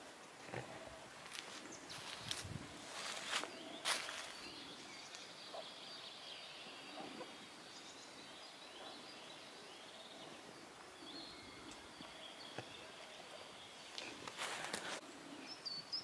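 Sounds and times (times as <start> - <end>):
birds singing faintly: 0.0 - 16.0
steady background hiss: 0.0 - 16.0.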